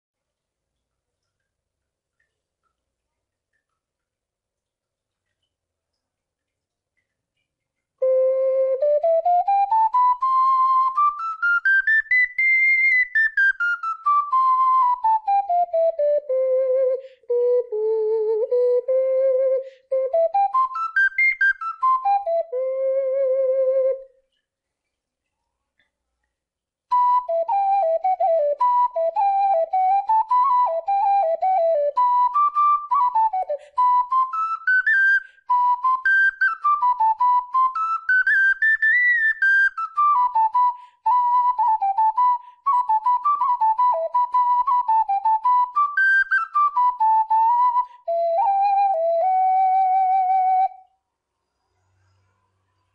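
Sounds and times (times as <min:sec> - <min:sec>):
double ocarina playing: 0:08.0 - 0:24.2, 0:26.9 - 0:51.0.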